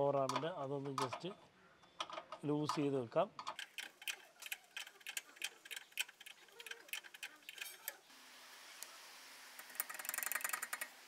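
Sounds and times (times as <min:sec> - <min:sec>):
ratchet wrench clicking: 0:09.6 - 0:10.9.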